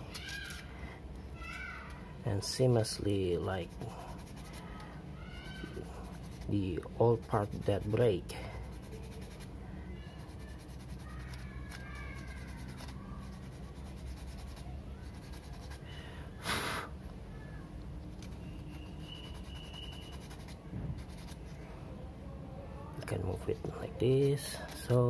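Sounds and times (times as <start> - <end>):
steady low hum: 0.0 - 25.0
plastic rod rubbing on sandpaper: 3.6 - 4.9, 5.5 - 9.5, 10.1 - 15.8, 18.2 - 21.5, 23.4 - 25.0.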